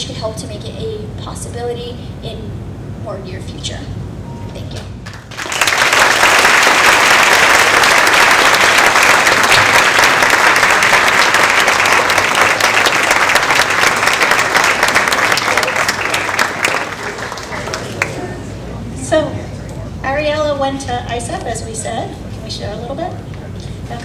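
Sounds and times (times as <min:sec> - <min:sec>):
audience applause: 0:05.0 - 0:18.6.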